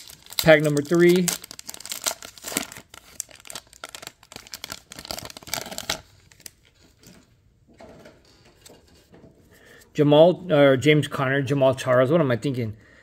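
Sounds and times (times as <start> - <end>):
plastic wrapper crinkling and tearing: 0.0 - 7.1.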